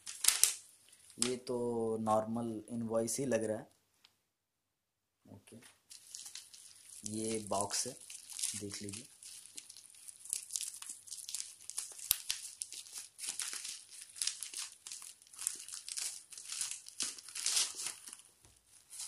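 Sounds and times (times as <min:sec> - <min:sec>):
plastic packaging crinkling: 0:00.0 - 0:01.5, 0:05.9 - 0:19.0.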